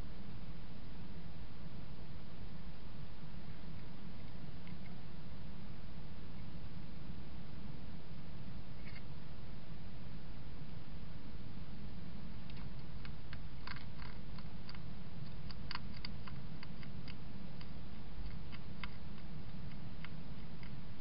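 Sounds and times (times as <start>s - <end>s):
steady low hum: 0.0s - 21.0s
hedgehog chewing: 12.4s - 21.0s.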